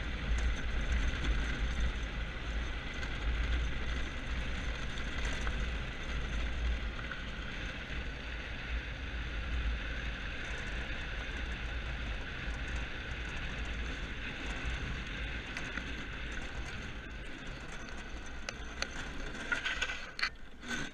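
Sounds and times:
rattling chassis: 0:00.0 - 0:20.9
small tyres rolling on concrete: 0:00.0 - 0:20.9
wind rumbling on microphone: 0:00.0 - 0:20.9
clicks: 0:17.8 - 0:20.9.

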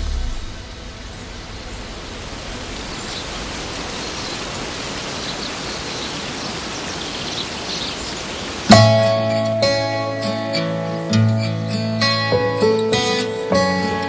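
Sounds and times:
falling water hissing: 0:00.0 - 0:09.0.

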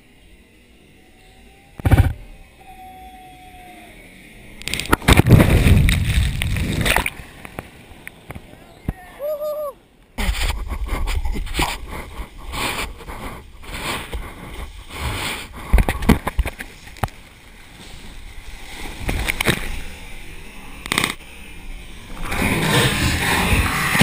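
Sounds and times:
waves churning: 0:02.8 - 0:24.0
water splashing and sloshing: 0:04.6 - 0:07.8.

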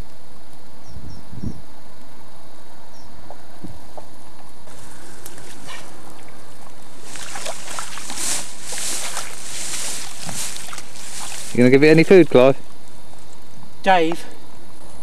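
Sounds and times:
water splashing: 0:04.7 - 0:11.7.

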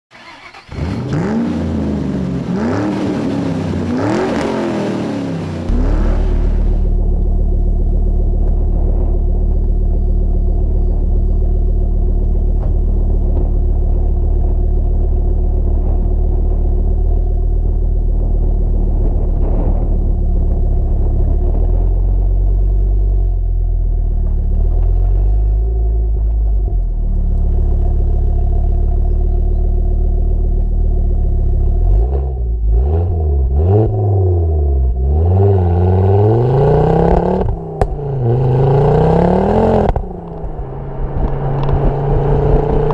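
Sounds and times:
car engine idling and revving: 0:00.1 - 0:42.9.

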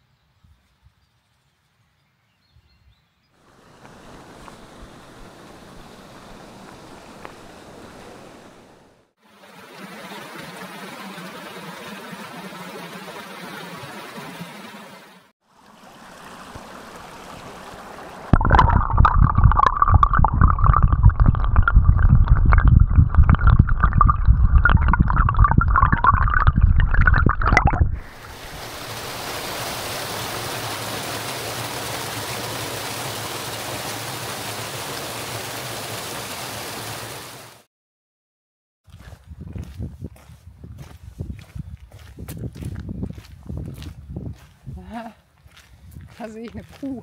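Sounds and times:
brook rushing over rocks: 0:03.5 - 0:08.9, 0:09.6 - 0:37.2
underwater gurgling and rumbling: 0:16.0 - 0:28.6.

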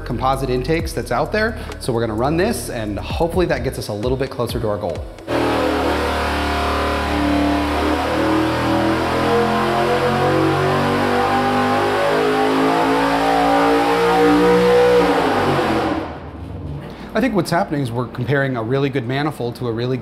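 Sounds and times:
engine revving at full throttle: 0:05.3 - 0:16.3.

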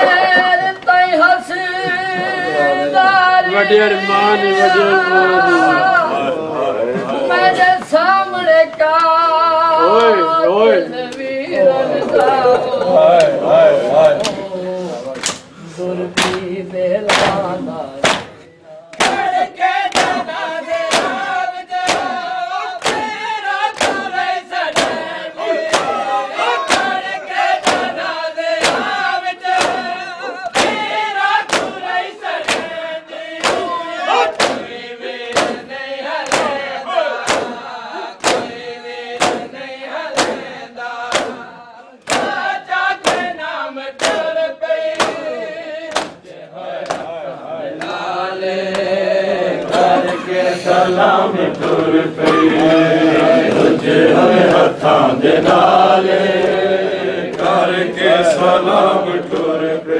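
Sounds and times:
men chanting in chorus: 0:00.0 - 0:59.9
hands striking chests: 0:21.8 - 0:22.2, 0:26.7 - 0:28.0, 0:31.5 - 0:31.8, 0:36.3 - 0:36.6, 0:37.2 - 0:37.6, 0:39.2 - 0:39.5, 0:41.1 - 0:41.4.

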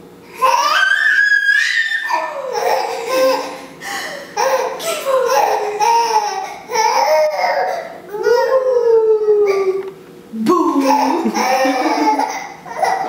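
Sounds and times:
baby laughing and squealing: 0:00.4 - 0:03.6, 0:10.8 - 0:13.0.

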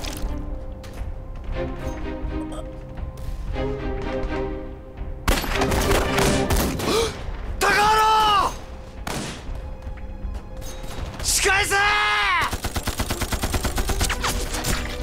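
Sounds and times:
background music: 0:00.0 - 0:15.0
gunfire and blasts: 0:05.2 - 0:07.5, 0:09.0 - 0:09.6, 0:12.4 - 0:15.0.

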